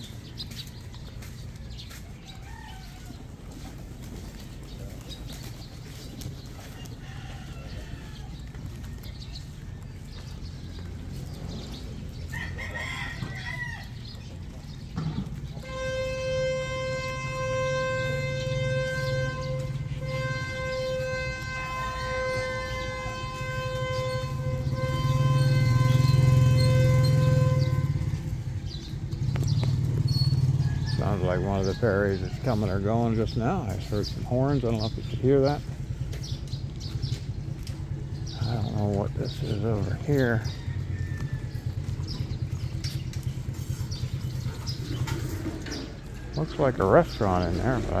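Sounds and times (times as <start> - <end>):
distant rooster crowing: 0.8 - 3.8, 6.5 - 10.8, 12.1 - 14.3, 30.0 - 32.9, 39.2 - 42.4
ferry horn blast: 15.3 - 35.8.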